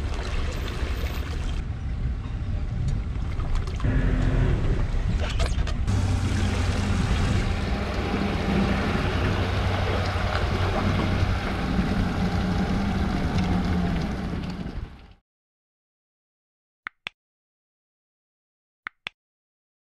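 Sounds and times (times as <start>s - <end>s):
vehicle engine hum: 0.0s - 15.2s
trailer rumbling on concrete: 3.8s - 15.2s.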